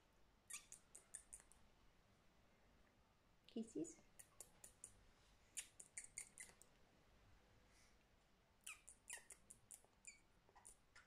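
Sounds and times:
budgerigar chirping: 0.5 - 1.3, 5.6 - 6.6, 8.6 - 11.0.

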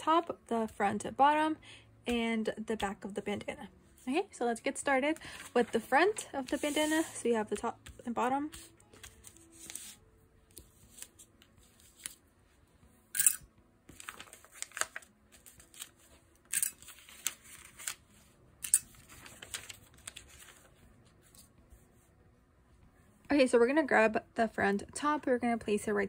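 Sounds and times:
paper rustling and crinkling: 5.2 - 12.3, 13.9 - 21.5.

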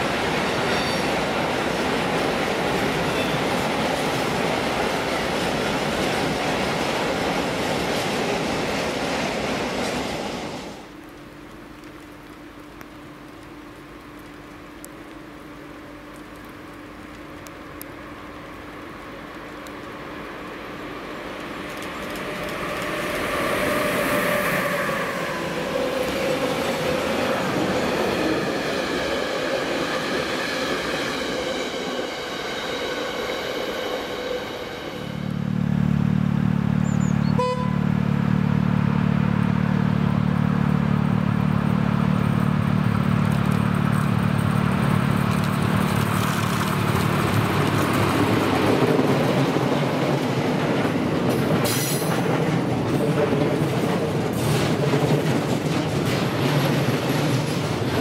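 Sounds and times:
train wagons rumbling over rails: 0.0 - 11.4, 18.5 - 38.4, 39.6 - 58.0
approaching locomotive rumble: 15.7 - 58.0.

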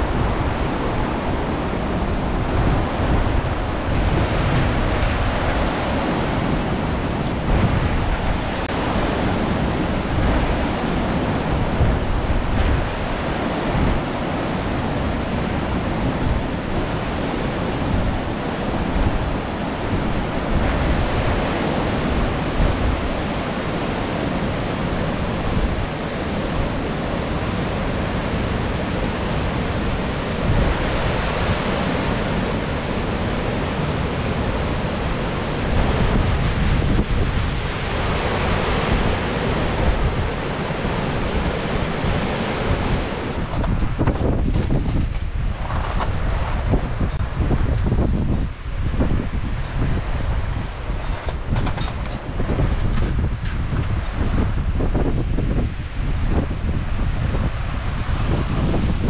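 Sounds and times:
waterfall rushing: 0.0 - 44.4
wind buffeting microphone: 0.0 - 59.0.

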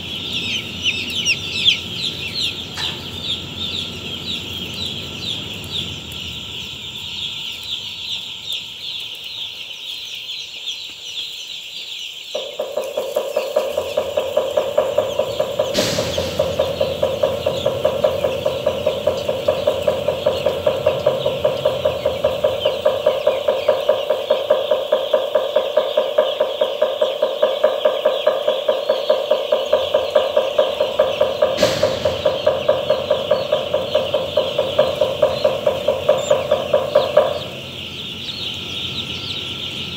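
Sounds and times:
pulsing mechanical hum: 0.0 - 10.7, 12.3 - 39.9
chicks peeping: 0.0 - 39.9
brief knocks: 13.8 - 19.3, 31.0 - 34.9.

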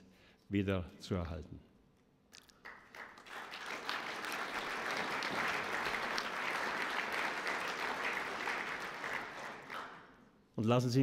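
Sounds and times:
audience applauding: 2.6 - 10.2.

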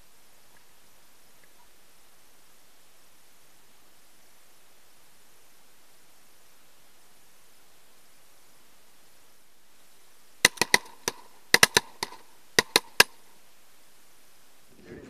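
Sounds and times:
shotgun shots: 10.4 - 13.1
shotgun cycling and ejecting shells: 10.5 - 13.2.

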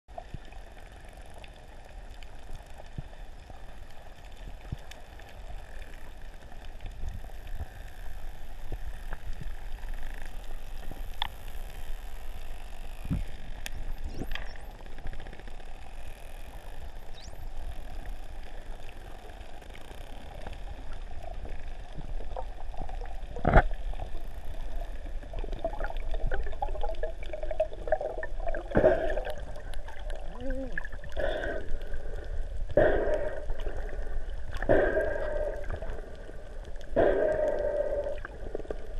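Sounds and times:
underwater rumble and hiss: 0.1 - 38.9
water gurgling and bubbling: 22.0 - 38.9.

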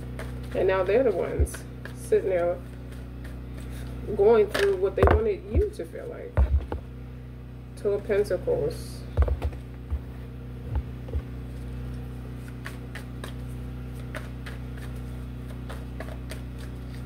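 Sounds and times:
soft low thumps: 0.0 - 2.7, 3.3 - 6.9, 9.1 - 11.4
steady low hum: 0.0 - 17.0.

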